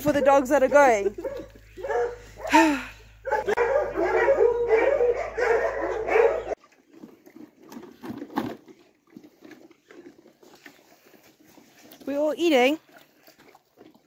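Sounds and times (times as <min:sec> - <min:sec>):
dog eating from plastic bowl: 0:00.0 - 0:02.2, 0:05.1 - 0:14.0
hounds whining and yipping: 0:01.1 - 0:02.6, 0:03.2 - 0:06.6.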